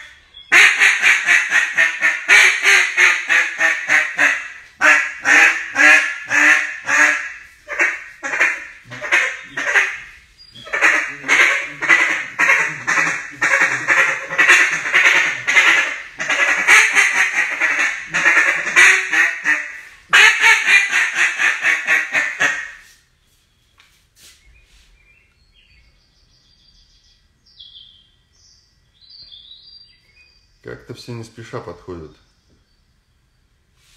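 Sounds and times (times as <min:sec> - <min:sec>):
duck call quacking: 0:00.0 - 0:22.9.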